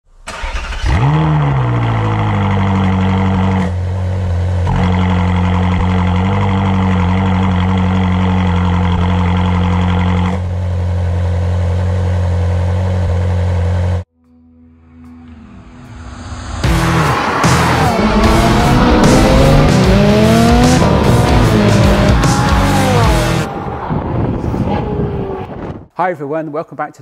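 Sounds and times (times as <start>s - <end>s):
sports car engine starting and idling: 0.2s - 14.0s, 16.6s - 23.8s.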